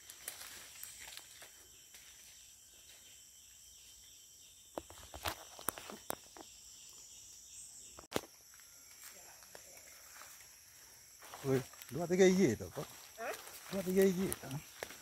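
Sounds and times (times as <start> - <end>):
twigs cracking: 0.0 - 2.1, 12.7 - 15.0
footsteps crunching through leaves: 0.0 - 3.0, 8.7 - 15.0
insects droning: 0.0 - 15.0.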